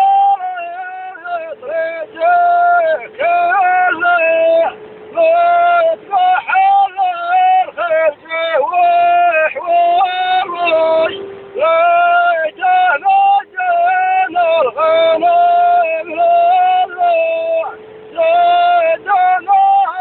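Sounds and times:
person singing long notes: 0.0s - 20.0s.

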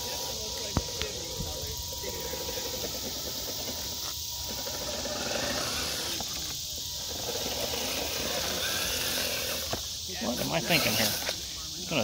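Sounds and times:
mechanical whirring: 0.0s - 11.8s
night insect chorus buzzing: 0.0s - 12.0s.

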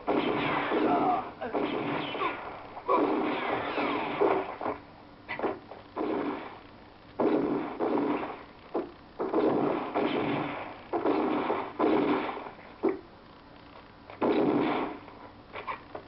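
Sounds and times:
revolver gunshots with echo: 0.0s - 4.8s, 5.4s - 6.6s, 7.2s - 12.6s, 14.2s - 15.1s.

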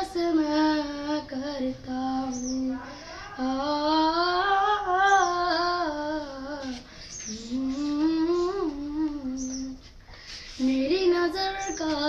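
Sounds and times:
boy breathing: 2.8s - 3.4s, 10.0s - 10.6s
boy humming a melody: 3.4s - 9.8s.

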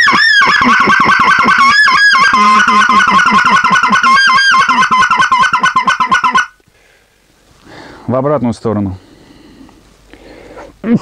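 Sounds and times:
goose call clucking: 0.0s - 6.6s.

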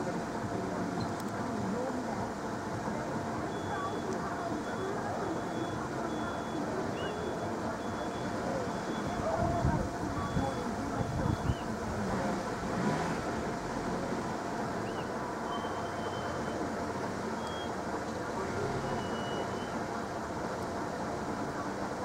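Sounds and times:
level crossing warning alarms: 2.6s - 11.8s, 14.8s - 18.0s, 18.6s - 20.6s.

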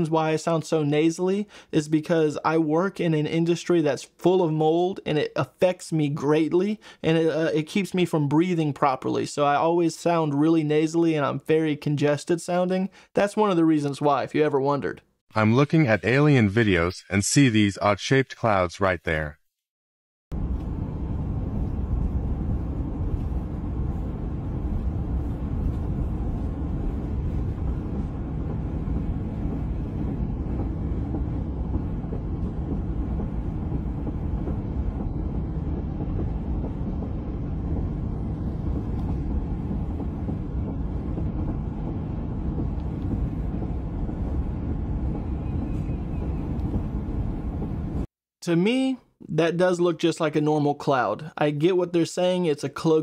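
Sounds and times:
car interior road rumble: 20.3s - 48.1s.

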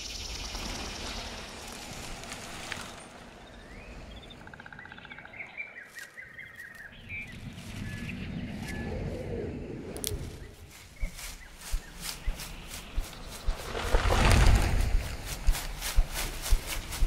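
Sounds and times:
small birds chirping: 0.0s - 17.0s
low rumble: 7.0s - 17.0s.

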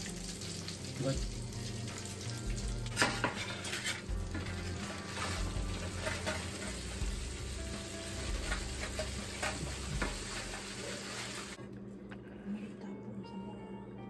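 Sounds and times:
metal spatula scraping a pan: 2.9s - 7.2s, 8.1s - 11.5s.

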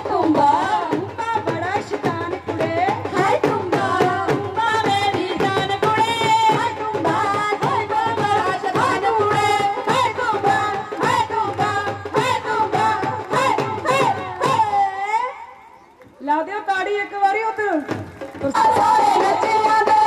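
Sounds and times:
drum beat: 0.0s - 14.9s, 17.8s - 20.0s
women singing over loudspeaker: 0.0s - 20.0s.

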